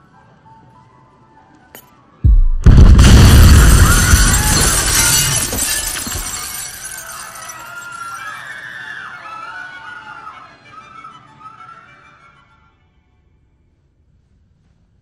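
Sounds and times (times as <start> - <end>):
music: 0.0 - 2.7, 7.2 - 14.0
low thud: 2.3 - 4.2
loud explosion blast: 2.3 - 5.6
shattering glass and debris: 3.0 - 8.0.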